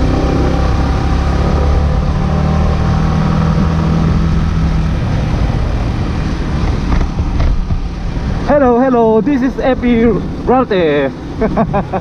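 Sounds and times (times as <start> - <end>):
wind noise: 0.0 - 10.5
motorcycle engine running: 0.0 - 11.5
road noise: 0.0 - 12.0.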